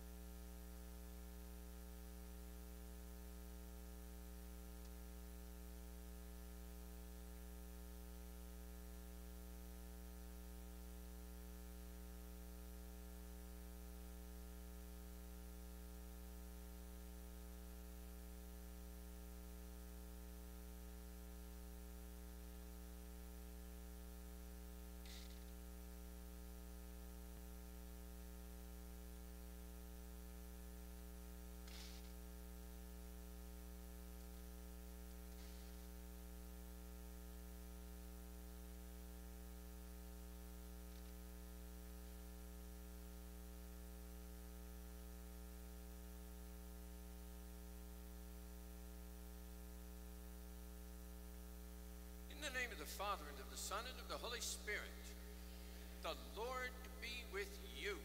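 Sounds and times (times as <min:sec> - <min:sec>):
electrical mains hum: 0:00.0 - 0:58.0
faint hiss: 0:27.3 - 0:47.9, 0:51.2 - 0:58.0.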